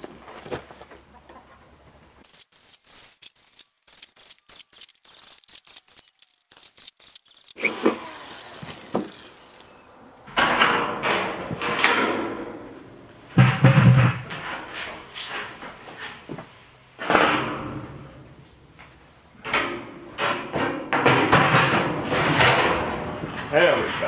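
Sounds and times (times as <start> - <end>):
power tool cutting sheet metal: 2.3 - 10.8.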